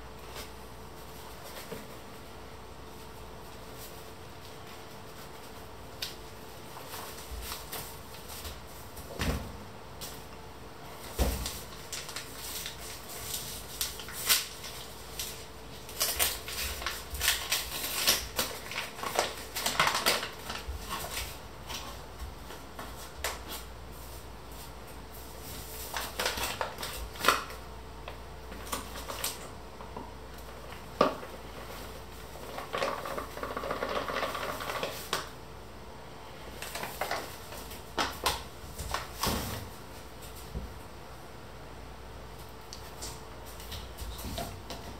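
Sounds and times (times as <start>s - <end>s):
faint steady hum: 0.0s - 44.9s
paper bag rustling: 0.2s - 9.2s, 11.0s - 27.6s.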